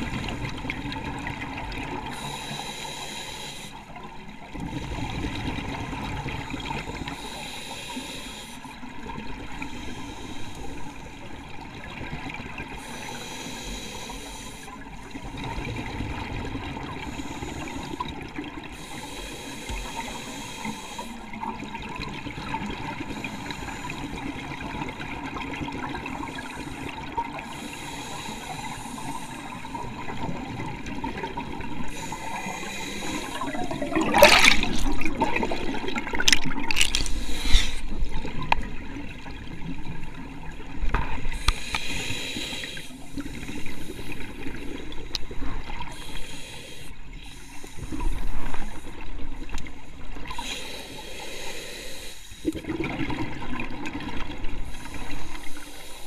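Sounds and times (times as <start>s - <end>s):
regulator breathing hiss: 2.1s - 3.9s, 7.1s - 8.7s, 9.7s - 10.8s, 12.8s - 14.7s, 17.0s - 18.0s, 18.7s - 21.2s, 23.1s - 24.2s, 26.3s - 29.7s, 31.9s - 33.6s, 37.1s - 38.0s, 41.3s - 44.3s, 45.9s - 49.0s, 50.3s - 52.6s, 54.6s - 56.0s
exhaled bubbles rushing: 33.3s - 41.4s, 52.4s - 54.5s.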